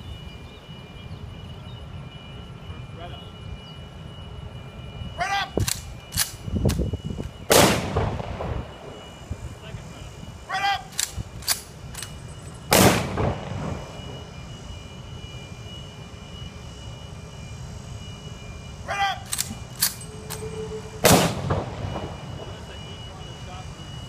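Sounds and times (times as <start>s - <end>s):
person shouting command: 5.2s - 5.6s, 10.5s - 11.0s, 18.8s - 19.3s
rifle clicks: 5.6s - 7.4s, 10.9s - 12.2s, 19.2s - 20.5s
rifle volleys: 5.6s - 8.0s, 10.9s - 13.4s, 19.2s - 21.6s.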